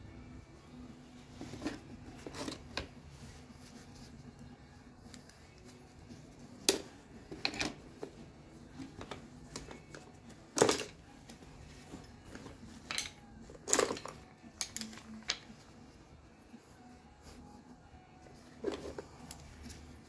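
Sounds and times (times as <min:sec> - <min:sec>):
screwdrivers clinking in tool bag: 0:09.7 - 0:11.1, 0:12.8 - 0:15.2.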